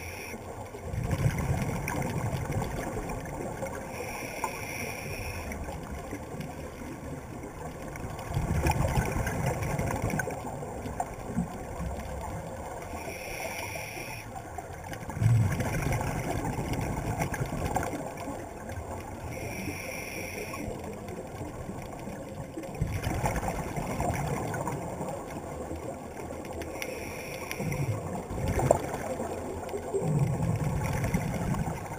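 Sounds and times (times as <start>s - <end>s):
regulator hiss: 0.0s - 0.5s, 3.9s - 5.6s, 12.9s - 14.3s, 19.3s - 20.8s, 26.8s - 27.9s
bubbling exhale underwater: 15.0s - 18.3s, 26.7s - 31.9s.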